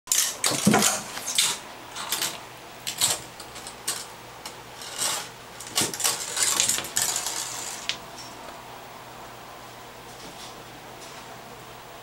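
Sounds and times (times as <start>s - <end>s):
toy spring clattering in bathtub: 0.1s - 8.3s.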